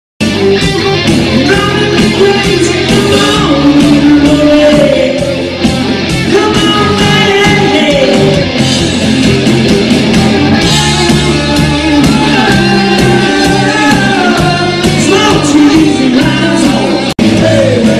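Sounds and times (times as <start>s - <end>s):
drum kit: 0.2s - 17.9s
electric bass guitar: 0.2s - 17.9s
man singing: 1.3s - 5.6s, 6.2s - 8.6s, 10.6s - 17.9s.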